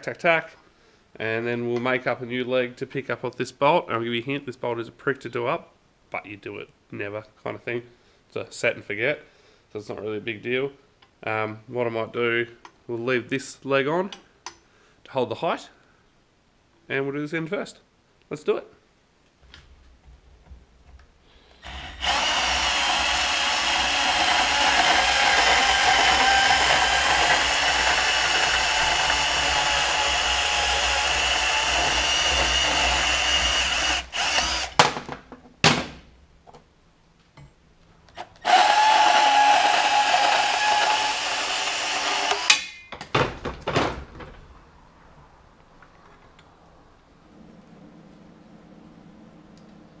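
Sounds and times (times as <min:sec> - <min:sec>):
band saw cutting steel: 0:21.7 - 0:34.8, 0:38.4 - 0:42.7.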